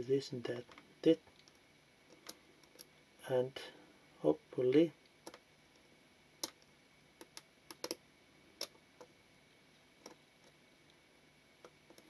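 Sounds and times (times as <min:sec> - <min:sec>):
small metallic clicks: 0:06.4 - 0:08.0.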